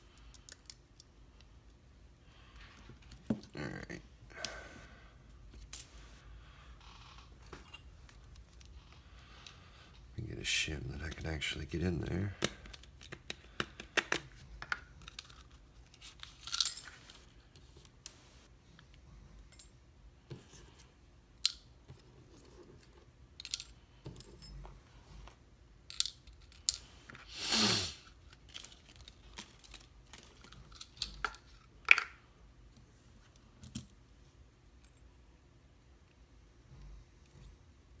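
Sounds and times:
plastic cases clicking and tapping: 12.4 - 14.8.

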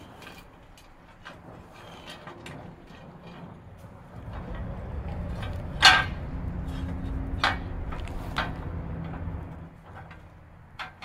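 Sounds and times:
metal knocks and clanks: 0.0 - 11.0
low rumble: 2.2 - 9.8.

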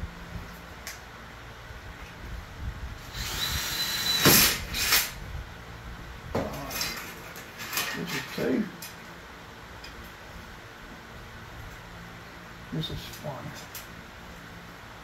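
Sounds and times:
power drill whining: 3.0 - 5.2.

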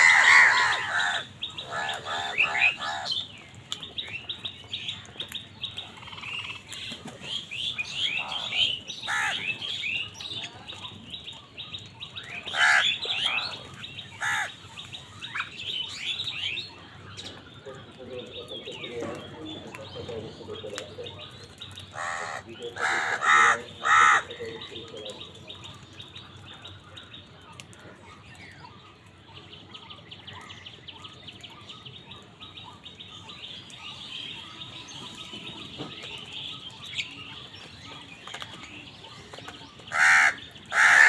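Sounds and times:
crows cawing: 0.0 - 3.2, 7.9 - 9.7, 12.4 - 14.6, 21.9 - 25.0, 39.9 - 41.0
faint bird chirping: 24.4 - 41.0.

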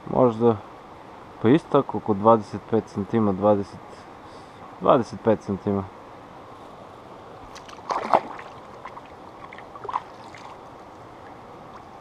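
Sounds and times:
flowing river water: 6.2 - 12.0
water splashing: 7.5 - 12.0.

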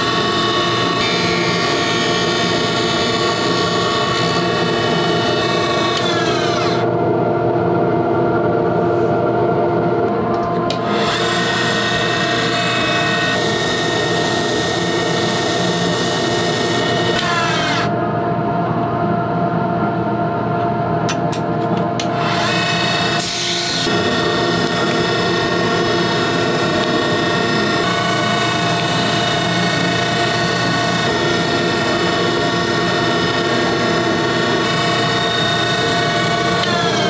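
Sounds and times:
chisel cutting spinning wood: 0.0 - 6.9, 10.6 - 17.9, 22.0 - 37.0
wood lathe motor hum: 0.0 - 6.9, 10.2 - 18.0, 22.0 - 37.0.

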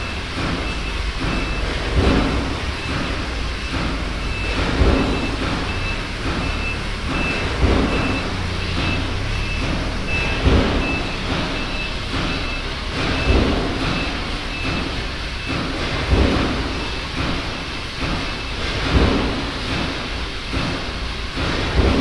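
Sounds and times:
industrial machinery running: 0.0 - 22.0
high beeping tone pulses: 2.8 - 15.7.

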